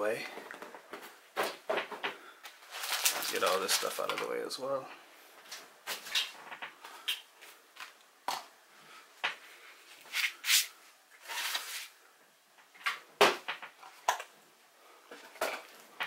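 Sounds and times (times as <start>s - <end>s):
cardboard rustling and scraping: 10.0s - 12.0s.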